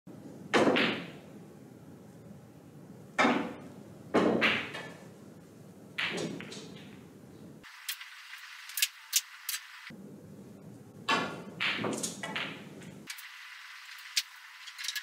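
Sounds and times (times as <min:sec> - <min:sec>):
snooker balls clacking: 0:00.6 - 0:01.2, 0:03.2 - 0:05.1, 0:06.0 - 0:07.1, 0:11.0 - 0:13.0.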